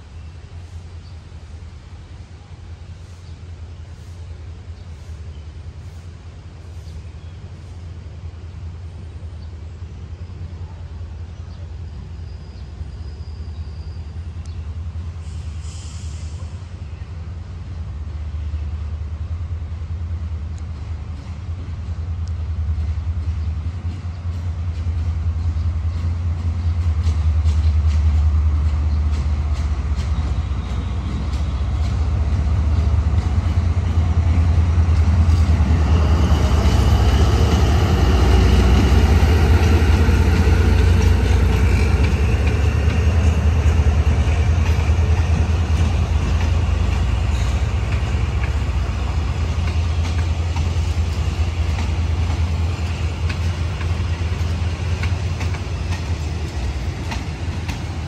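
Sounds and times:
locomotive engine droning: 0.0s - 58.0s
train wheels on track: 0.0s - 58.0s.

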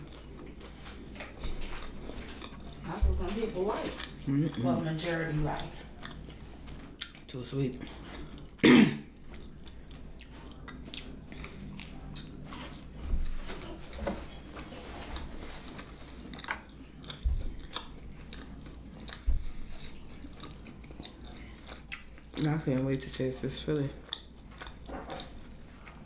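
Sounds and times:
close-miked chewing: 0.0s - 26.0s.

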